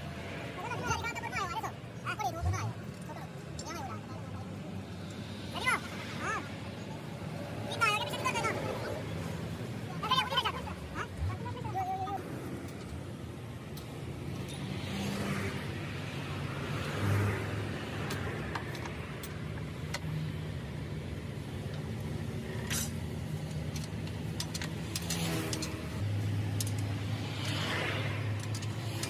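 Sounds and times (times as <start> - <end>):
passing road noise: 0.0 - 29.0
sharp metal clicks: 21.6 - 29.0.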